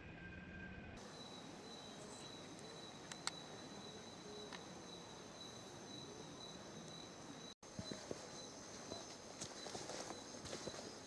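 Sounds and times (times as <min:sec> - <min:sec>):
insects trilling: 0:01.0 - 0:11.0
sharp click: 0:03.0 - 0:03.4.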